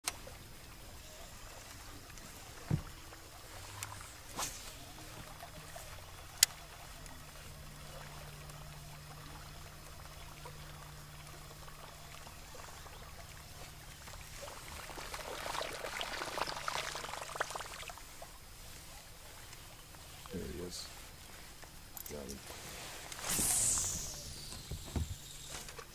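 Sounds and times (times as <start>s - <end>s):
electric trolling motor humming: 0.0s - 19.9s, 23.0s - 25.9s
water splashing: 0.0s - 20.3s.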